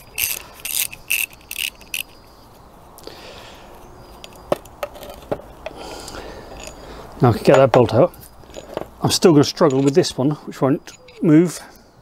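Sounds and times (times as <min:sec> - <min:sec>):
ratchet spanner clicking: 0:00.0 - 0:02.2
sharp clicks of nipple turning: 0:00.0 - 0:02.2.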